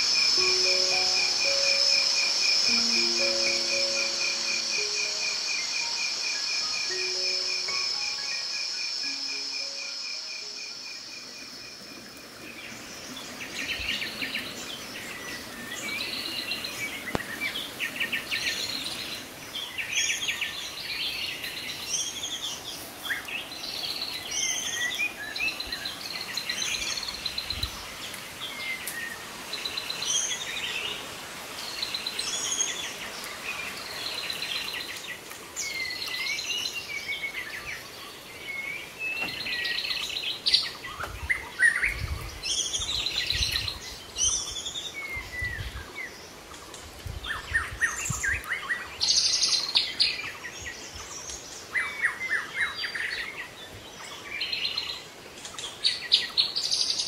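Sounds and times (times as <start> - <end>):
soft music notes: 0.0 - 17.9
night insects trilling: 0.0 - 45.0
birds singing in a dawn chorus: 0.0 - 57.0.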